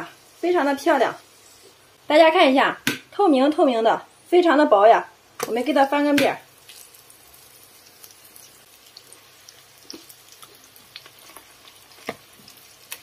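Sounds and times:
oil sizzling faintly: 0.0s - 2.8s, 3.4s - 13.0s
oil crackles and pops: 6.2s - 13.0s.

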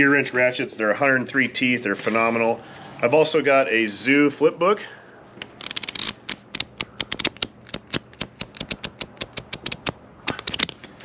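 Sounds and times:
flipbook pages flicking: 5.4s - 11.0s.

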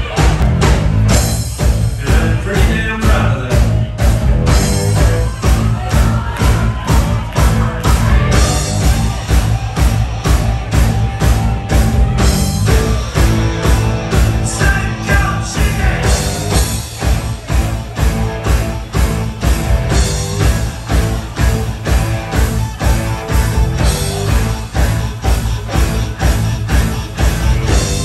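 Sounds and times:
live rock band playing: 0.0s - 28.0s
man singing: 1.9s - 3.9s, 14.4s - 16.4s.

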